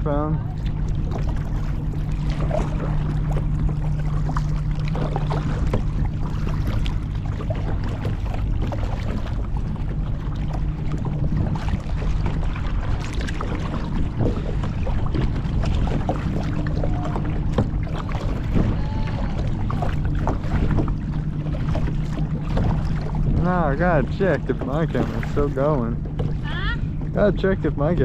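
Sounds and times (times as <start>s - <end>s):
paddle strokes splashing: 0.0s - 28.0s
steady low rumble: 0.0s - 28.0s.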